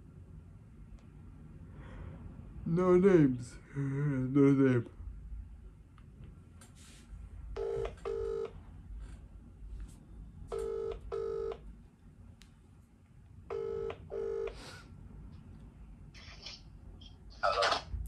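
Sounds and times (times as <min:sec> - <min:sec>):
telephone ringback tone: 0:07.6 - 0:08.6, 0:10.5 - 0:11.6, 0:13.5 - 0:14.6.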